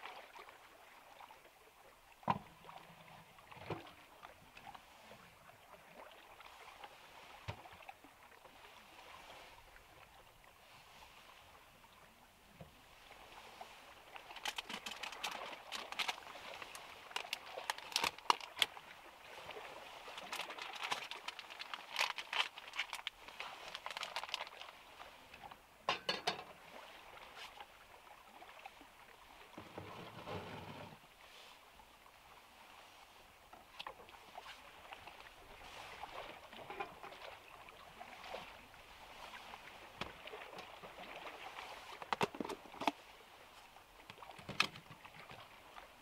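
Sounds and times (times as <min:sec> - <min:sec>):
plastic packaging rustling: 0:14.4 - 0:16.2, 0:17.1 - 0:18.6, 0:20.2 - 0:24.6
frying pan scraping on stove grate: 0:29.8 - 0:31.0.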